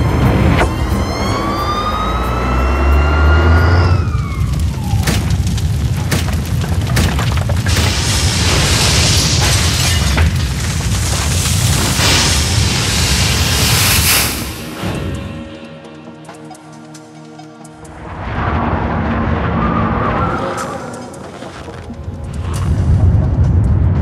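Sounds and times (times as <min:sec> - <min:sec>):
siren-like tone: 0:00.0 - 0:05.0, 0:14.4 - 0:21.6
dense crackling noise: 0:03.3 - 0:15.5, 0:17.8 - 0:24.0.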